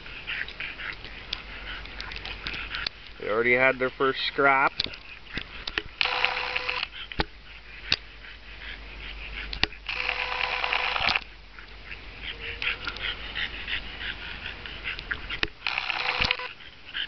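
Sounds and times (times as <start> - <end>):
dogs growling and snorting: 0.0 - 3.9, 11.2 - 17.0
dog grunts: 11.8 - 15.4.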